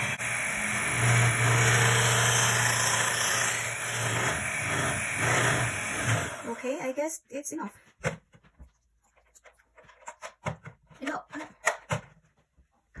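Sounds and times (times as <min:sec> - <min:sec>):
beaters churning thick batter: 0:00.0 - 0:06.6
electric hand mixer whirring: 0:00.0 - 0:06.9.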